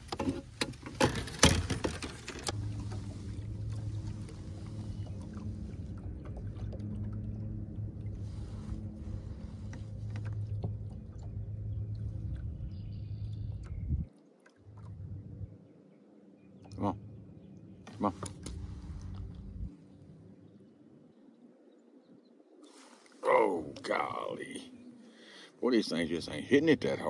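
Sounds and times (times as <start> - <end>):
knocks and clatter of handling: 0.0 - 2.6.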